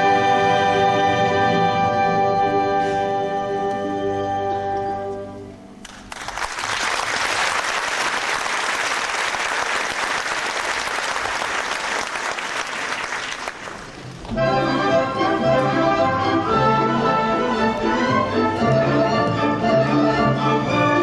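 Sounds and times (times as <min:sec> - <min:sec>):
orchestra playing: 0:00.0 - 0:05.8, 0:13.9 - 0:21.0
audience applauding: 0:05.8 - 0:14.2.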